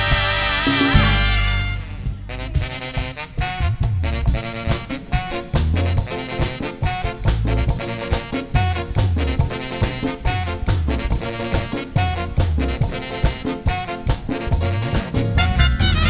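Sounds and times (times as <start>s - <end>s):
latin dance band music: 0.0s - 16.0s.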